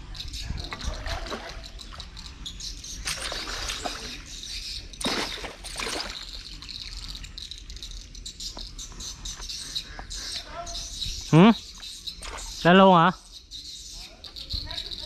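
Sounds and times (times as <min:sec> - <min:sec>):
fish thrashing and splashing water: 0:03.0 - 0:04.3, 0:05.0 - 0:06.4.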